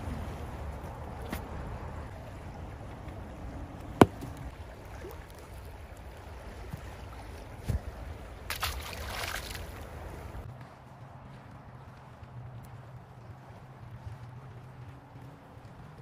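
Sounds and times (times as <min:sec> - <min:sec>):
wind and water rumble: 0:00.0 - 0:16.0
fish splashing into water: 0:08.4 - 0:10.0.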